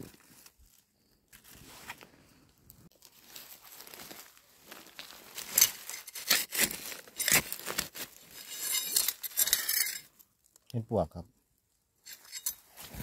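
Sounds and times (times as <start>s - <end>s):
dry leaves crunching and rustling: 2.9s - 9.0s.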